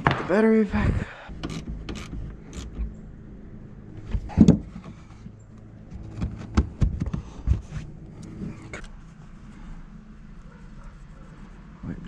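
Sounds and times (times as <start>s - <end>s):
knocks and clicks: 1.3s - 2.9s.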